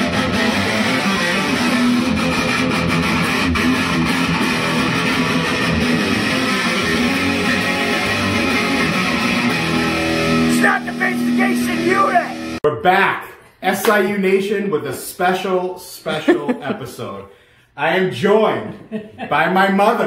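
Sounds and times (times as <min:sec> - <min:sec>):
electric guitar music: 0:00.0 - 0:12.6.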